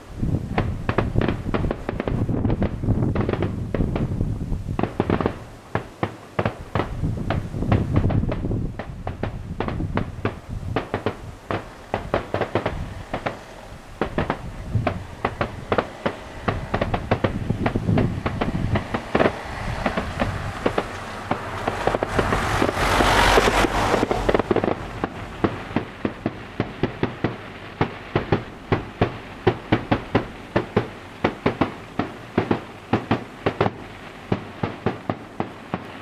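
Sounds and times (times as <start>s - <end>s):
fireworks bangs and pops: 0.0s - 36.0s
low rumble: 12.6s - 31.2s.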